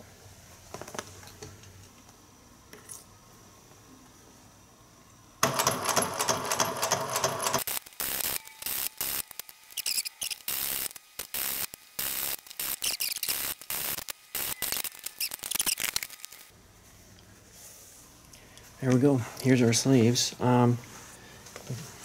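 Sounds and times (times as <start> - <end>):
sewing machine stitching leather: 5.4 - 7.7.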